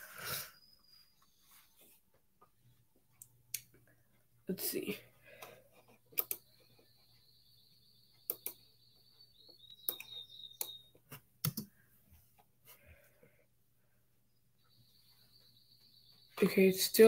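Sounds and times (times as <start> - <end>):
computer mouse clicks: 5.4 - 6.6, 8.3 - 8.6, 9.8 - 10.8, 11.4 - 11.7.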